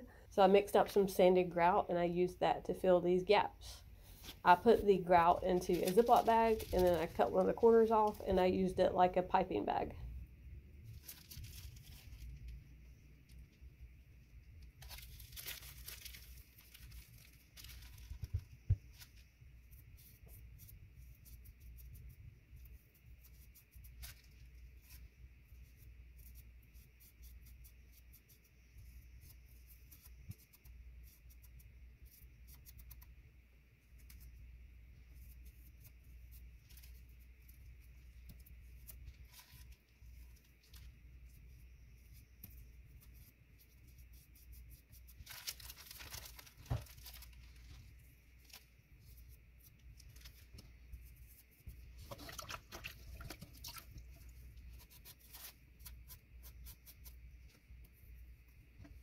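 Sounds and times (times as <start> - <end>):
plastic bag crinkling: 5.6 - 8.3, 14.8 - 19.1, 45.2 - 47.8.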